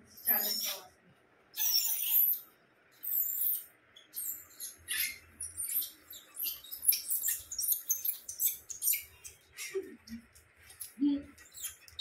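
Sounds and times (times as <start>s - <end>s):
puppy squeaking: 0.2s - 0.9s, 1.6s - 9.3s.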